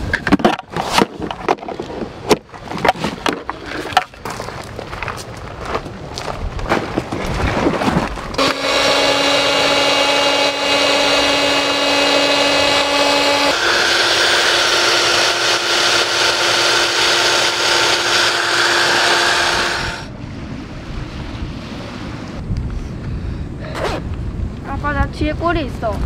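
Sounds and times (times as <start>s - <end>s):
cordless blower whirring: 8.4s - 20.1s
electric air pumps humming: 8.4s - 20.1s.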